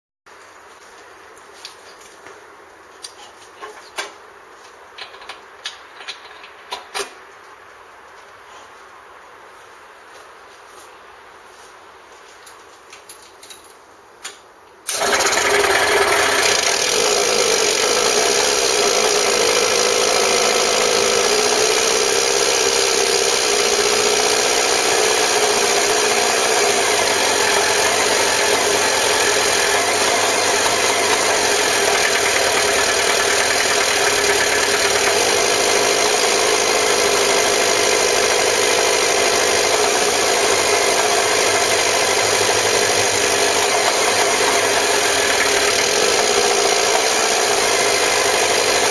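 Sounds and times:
two-stroke engine starting and running: 14.9 - 48.9.

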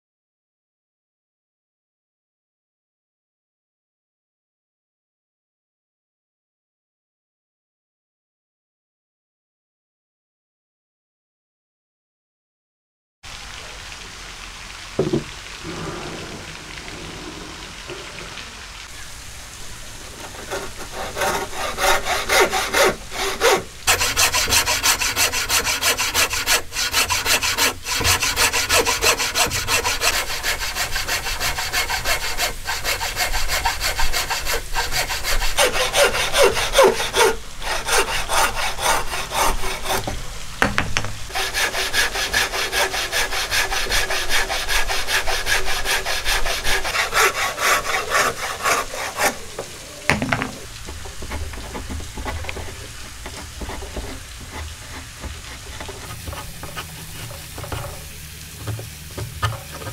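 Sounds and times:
hand saw cutting wood: 20.1 - 40.3, 41.3 - 59.9.

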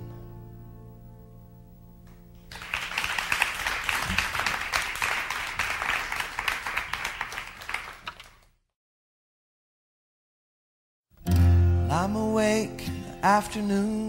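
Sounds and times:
audience applause: 2.5 - 8.4.

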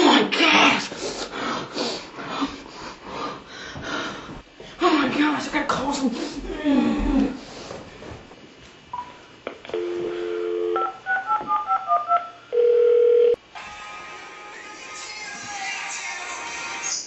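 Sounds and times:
phone dial tone: 9.7 - 13.4.

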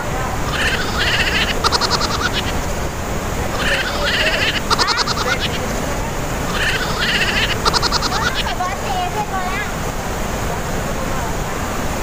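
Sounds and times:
waterfall rushing: 0.0 - 12.0
call with quick clicks: 0.5 - 2.7, 3.5 - 8.6.

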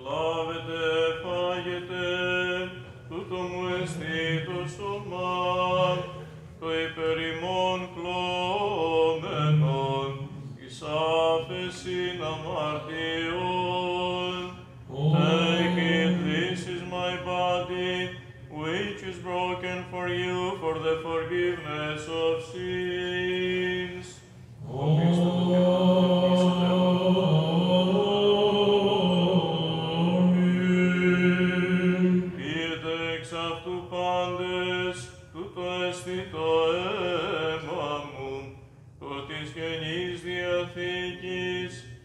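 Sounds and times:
men's voices chanting: 14.9 - 18.0.

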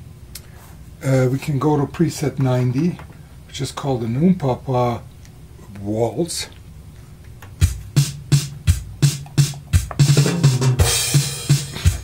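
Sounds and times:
drum machine waltz pattern: 7.5 - 12.0.

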